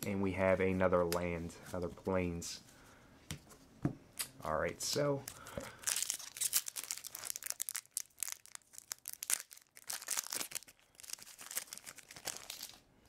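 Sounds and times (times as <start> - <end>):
foil wrapper tearing and crinkling: 5.3 - 12.8.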